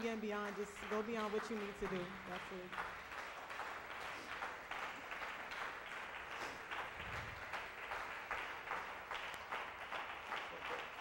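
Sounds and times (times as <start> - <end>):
congregation applauding: 0.0 - 11.0.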